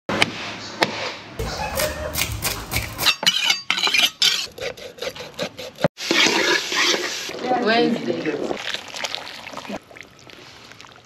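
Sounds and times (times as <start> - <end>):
knife scraping on wooden board: 1.7 - 7.3.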